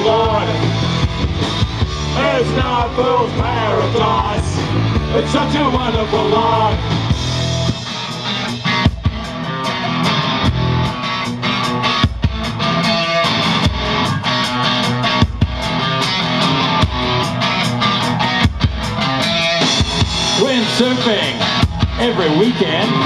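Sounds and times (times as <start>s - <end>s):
drum kit beat: 0.0s - 23.0s
electric guitars: 0.0s - 23.0s.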